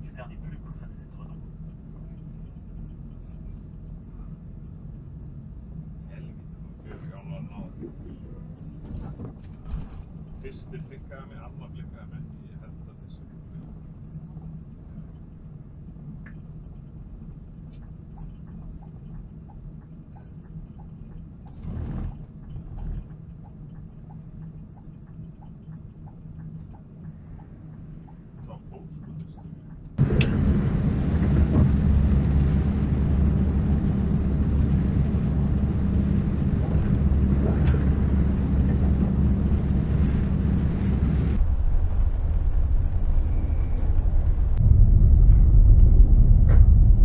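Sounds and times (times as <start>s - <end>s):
road and wind rumble: 0.0s - 47.0s
vehicle cabin drone: 0.0s - 47.0s
faint ticks: 22.2s - 29.9s.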